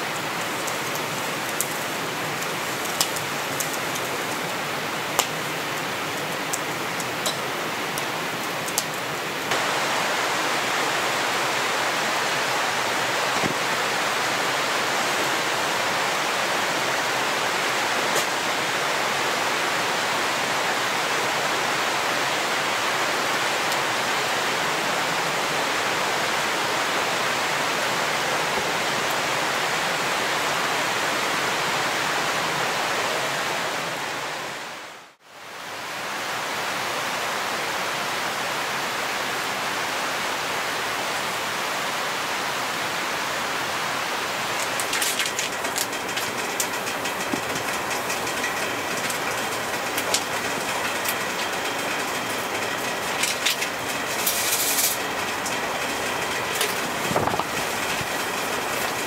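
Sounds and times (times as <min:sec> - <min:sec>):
steady rain falling: 0:00.0 - 0:59.0
crackling and clicking: 0:00.1 - 0:09.5, 0:44.6 - 0:59.0.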